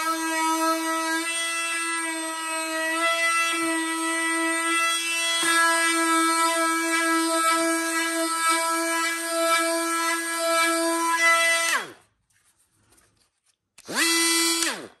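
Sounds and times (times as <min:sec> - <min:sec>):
oscillating tool buzzing: 0:13.9 - 0:14.9.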